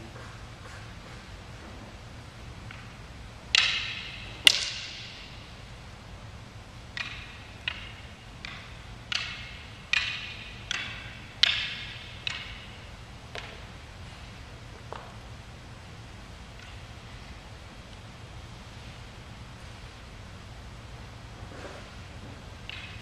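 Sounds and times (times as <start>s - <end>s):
wooden sticks clacking with echo: 2.6s - 5.8s, 6.8s - 15.2s, 16.5s - 18.1s, 21.8s - 23.0s.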